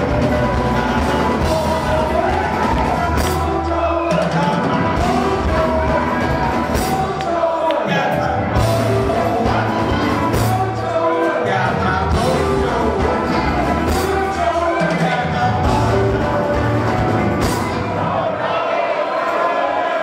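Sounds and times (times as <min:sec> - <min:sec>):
drum and cymbal hits: 0:00.0 - 0:07.4
blues band playing: 0:00.0 - 0:18.5.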